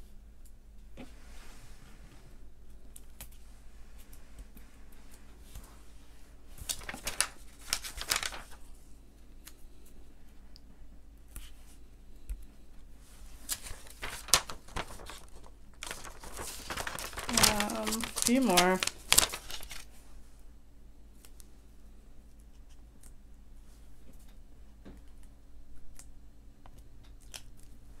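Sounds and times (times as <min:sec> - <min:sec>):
plastic sheet crinkling: 0:06.5 - 0:08.7, 0:13.1 - 0:19.9.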